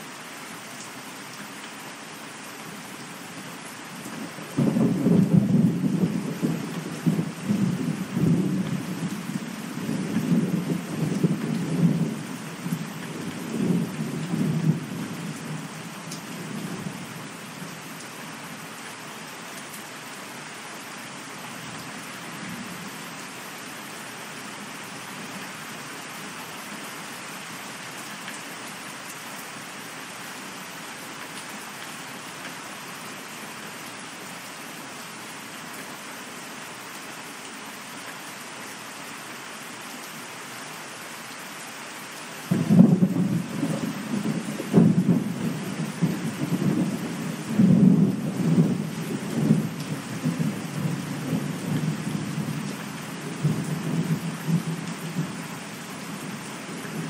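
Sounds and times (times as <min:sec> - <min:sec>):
steady rain: 0:00.0 - 0:57.0
thunder rumbling: 0:42.5 - 0:51.9.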